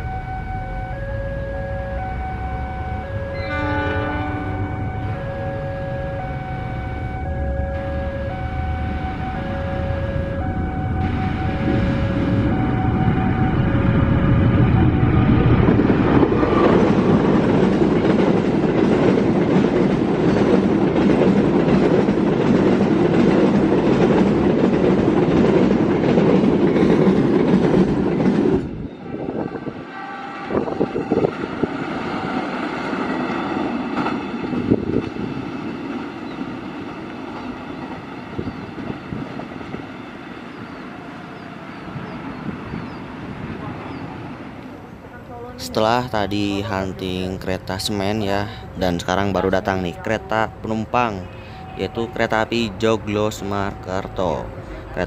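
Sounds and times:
diesel locomotive rumble: 0.0 - 29.8.

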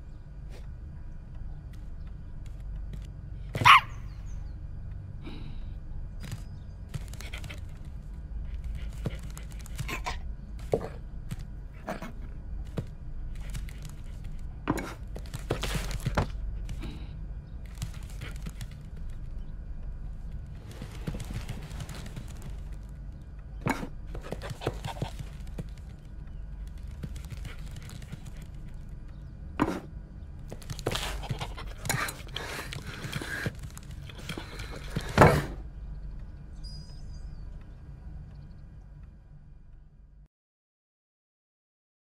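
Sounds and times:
low steady hum: 0.0 - 40.3
knocks and scrapes on hard floor: 30.6 - 35.6.

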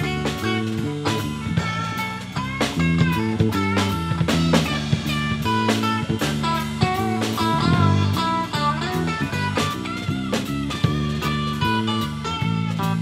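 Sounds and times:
bass guitar: 0.0 - 13.0
drum kit steady beat: 0.0 - 13.0
electric guitar melody: 0.0 - 13.0.

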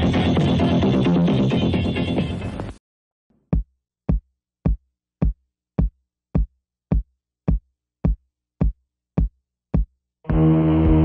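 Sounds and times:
electronic kick drum thumps: 3.5 - 11.0.

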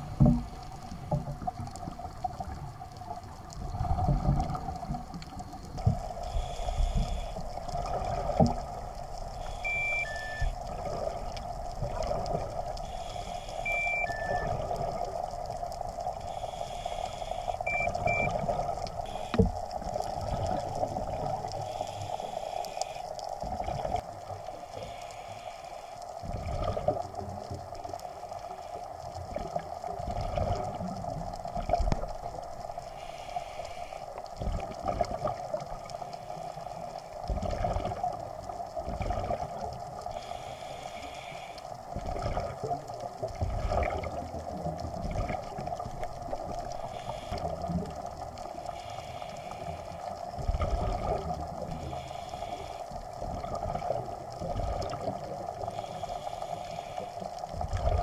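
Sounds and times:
exhaled bubbles rumbling underwater: 0.0 - 25.0, 26.0 - 58.0
regulator hissing inhalations: 6.2 - 7.4, 12.8 - 14.1, 16.2 - 17.8, 21.6 - 23.1, 24.8 - 26.0, 32.9 - 34.2, 40.1 - 41.7, 48.7 - 50.1, 51.8 - 52.9, 55.7 - 57.3.

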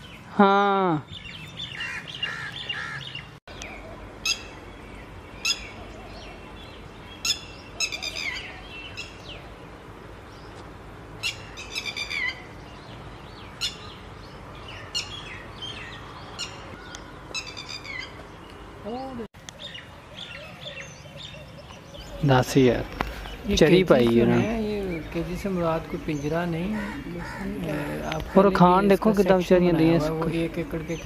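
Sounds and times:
small birds twittering: 0.0 - 31.0
lapwing calling: 1.1 - 4.6, 7.2 - 9.5, 11.2 - 14.0, 14.6 - 18.2, 18.9 - 29.4.

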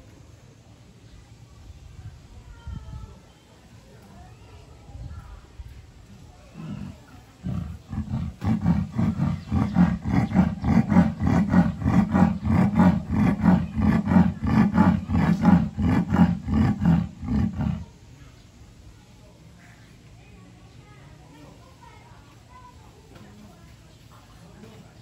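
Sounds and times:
leopard sawing call: 6.6 - 17.9.

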